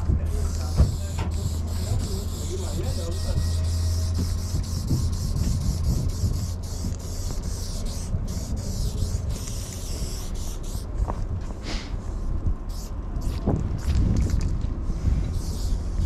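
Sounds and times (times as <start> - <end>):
steady low rumble: 0.0 - 16.0
spray paint can hissing: 0.5 - 16.0.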